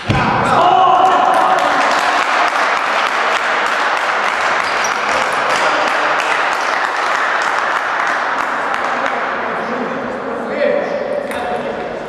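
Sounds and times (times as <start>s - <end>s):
crowd clapping: 1.0s - 9.4s.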